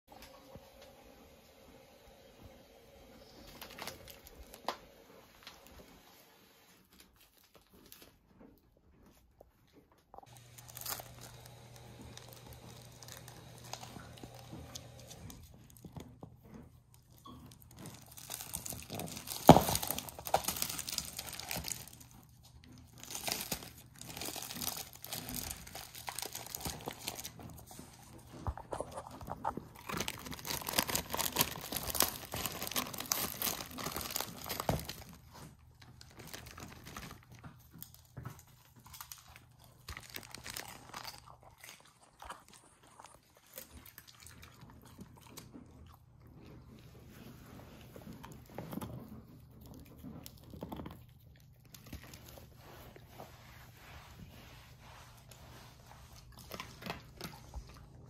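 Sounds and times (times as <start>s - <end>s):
plastic wrap crinkling and tearing: 3.2s - 5.9s, 6.8s - 8.3s, 10.2s - 44.9s, 55.5s - 58.0s
puppy gnawing chew bone: 7.0s - 53.7s, 55.3s - 58.0s.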